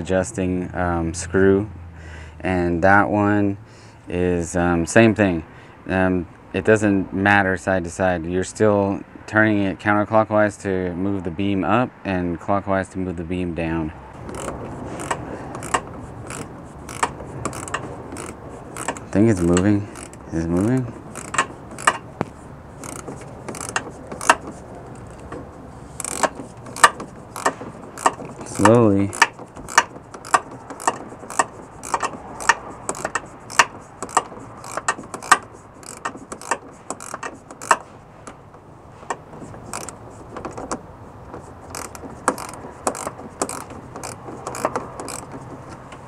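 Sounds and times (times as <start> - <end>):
ratcheting wrench clicks: 14.2 - 22.2, 22.8 - 38.4, 39.1 - 40.8, 41.4 - 45.9.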